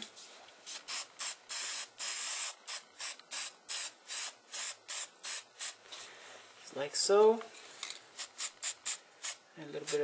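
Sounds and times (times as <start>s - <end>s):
spray paint can hissing: 0.7s - 5.8s, 8.2s - 10.0s.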